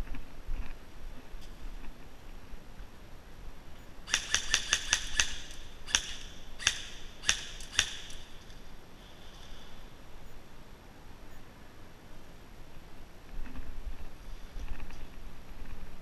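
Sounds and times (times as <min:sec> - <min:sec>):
airsoft gunshots: 0:04.1 - 0:08.3.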